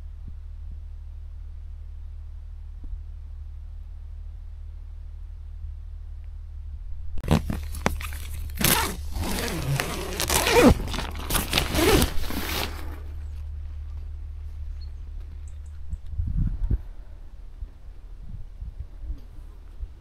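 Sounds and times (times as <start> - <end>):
tent zip pulled open: 7.2 - 13.2
tent fabric rustling: 7.2 - 13.4.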